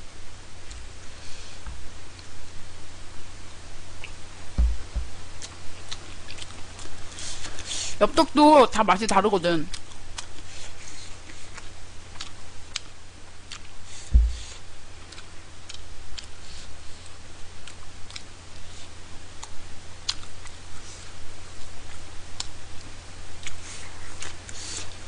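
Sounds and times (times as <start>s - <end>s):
steady low hum: 0.0s - 25.0s
low thump: 4.6s - 5.1s, 14.1s - 14.5s
wet chewing: 5.4s - 7.7s, 9.7s - 12.9s, 13.5s - 18.8s, 19.4s - 21.1s.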